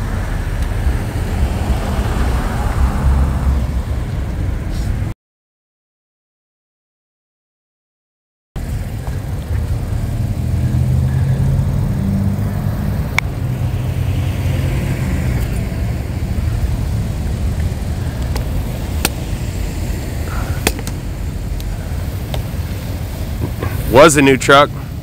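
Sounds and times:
road traffic rumble: 0:00.0 - 0:05.2, 0:08.6 - 0:25.0
fire popping and cracking: 0:17.3 - 0:23.8.

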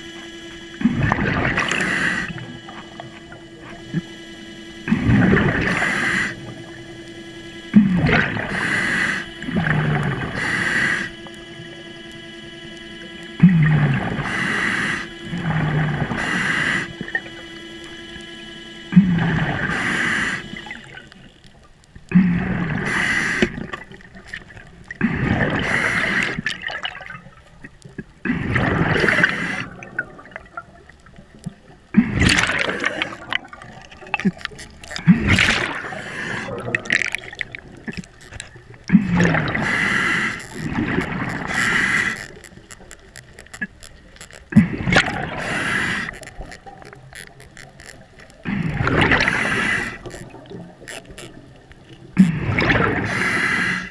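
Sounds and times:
gurgling exhaust bubbles: 0:00.0 - 0:04.1, 0:04.8 - 0:06.7, 0:07.7 - 0:11.1, 0:22.1 - 0:42.8, 0:43.5 - 0:53.2
hissing breath through regulator: 0:00.8 - 0:18.3, 0:18.9 - 0:21.2, 0:22.1 - 0:23.8, 0:25.0 - 0:26.5, 0:28.7 - 0:29.9, 0:34.2 - 0:42.8, 0:44.5 - 0:47.3, 0:48.5 - 0:50.4, 0:52.2 - 0:53.9.

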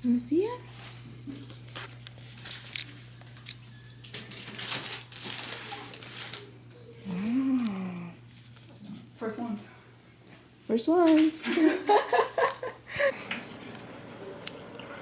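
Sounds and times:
rustling and crinkling: 0:00.6 - 0:07.0.

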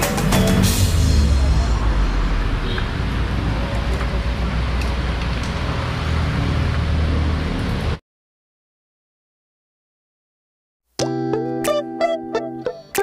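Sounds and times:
road traffic rumble: 0:00.0 - 0:08.0.

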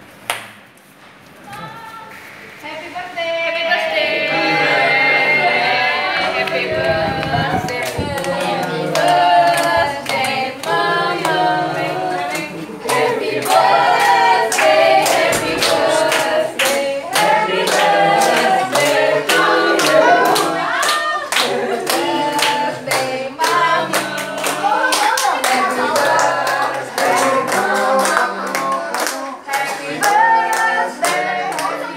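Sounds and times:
hands clapping: 0:00.2 - 0:00.6, 0:12.3 - 0:31.8
group singing in unison: 0:03.6 - 0:31.9.

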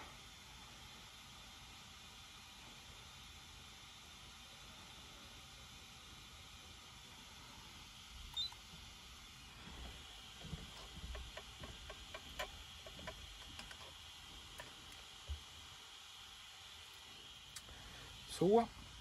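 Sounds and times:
faint clicks and light taps: 0:09.7 - 0:15.4.

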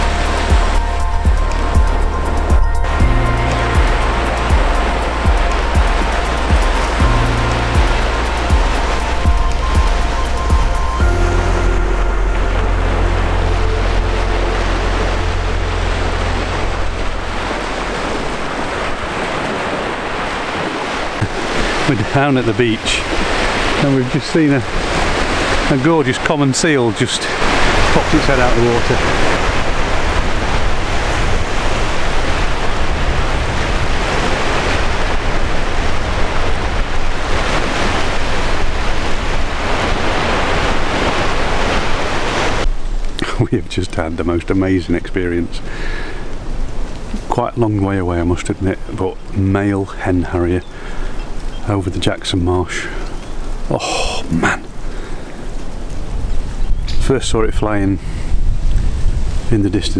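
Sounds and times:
low rumble: 0:00.0 - 0:19.2
surf breaking on beach: 0:00.0 - 0:51.8
wind rumbling on microphone: 0:00.0 - 0:52.2, 0:53.0 - 0:59.9.

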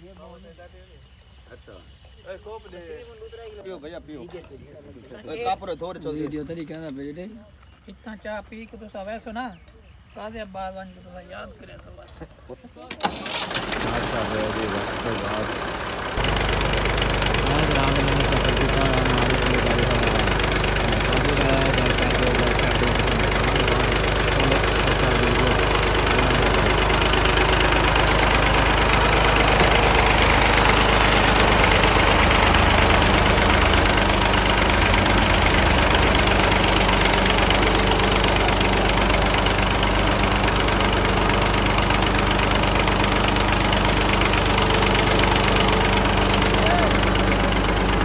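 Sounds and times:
tractor diesel engine running: 0:13.0 - 0:48.0.

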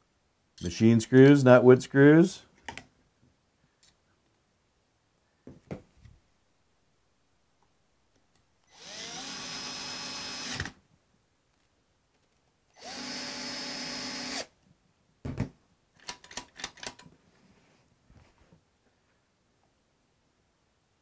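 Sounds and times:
knock: 0:05.5 - 0:05.9, 0:15.2 - 0:15.6
cordless drill running: 0:08.7 - 0:10.8, 0:12.8 - 0:14.5.

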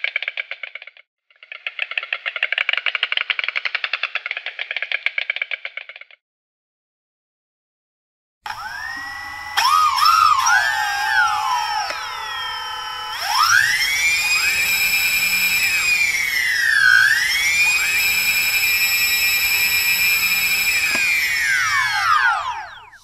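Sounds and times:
drone propeller motors whining: 0:08.5 - 0:23.0.

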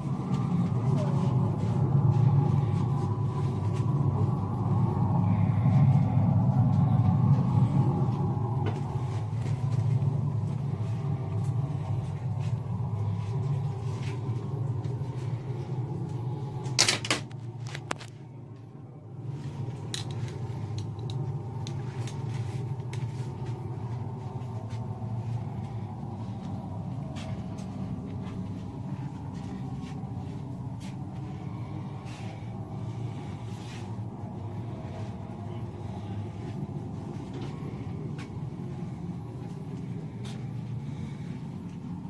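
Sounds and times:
low rumbling hum: 0:00.0 - 0:42.0.

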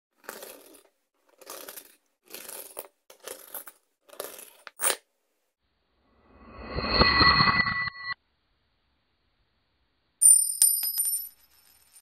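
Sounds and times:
coins scraping on cloth: 0:00.2 - 0:05.0.

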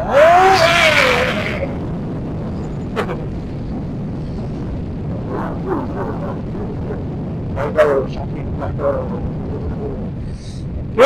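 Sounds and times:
loud pitched cry: 0:00.0 - 0:01.8
wind rush: 0:00.0 - 0:11.0.

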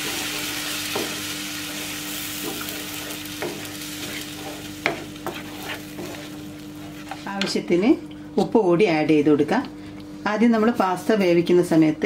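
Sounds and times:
sauce sizzling in frying pan: 0:00.0 - 0:07.1
spatula scraping pan: 0:00.0 - 0:07.8.

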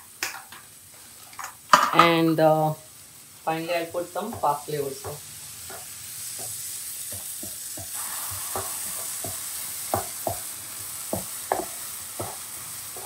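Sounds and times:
filling sizzling in a frying pan: 0:00.0 - 0:13.0
spatula scraping and tapping pan: 0:03.8 - 0:13.0.

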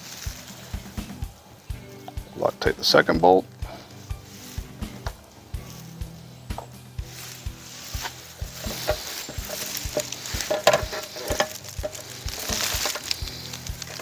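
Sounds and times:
background music with steady beat: 0:00.0 - 0:14.0
hands rustling parts: 0:06.6 - 0:14.0.

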